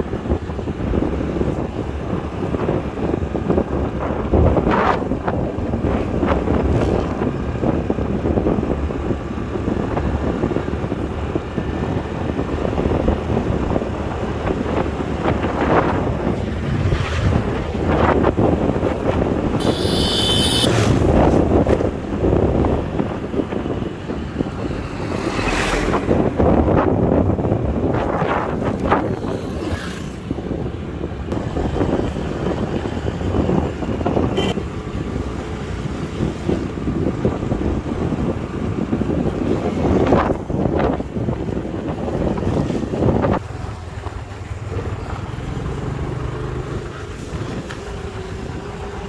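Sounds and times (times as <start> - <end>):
road noise: 0.0 - 49.0
wind buffeting microphone: 0.0 - 49.0
scooter engine: 19.6 - 21.4.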